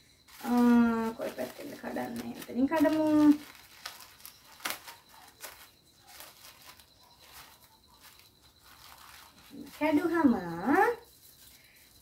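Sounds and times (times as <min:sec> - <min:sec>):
mailing packet tearing open: 0:00.3 - 0:09.8
sharp paper crackles: 0:00.3 - 0:12.0.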